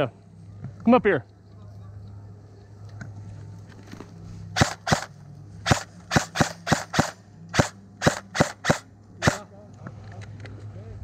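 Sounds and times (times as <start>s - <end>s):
airsoft rifle shots: 4.6s - 9.5s.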